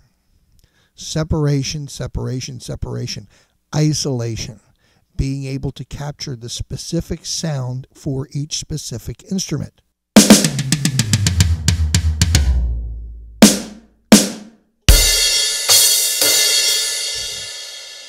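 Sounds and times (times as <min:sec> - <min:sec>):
electronic drum hits: 0:10.2 - 0:15.9.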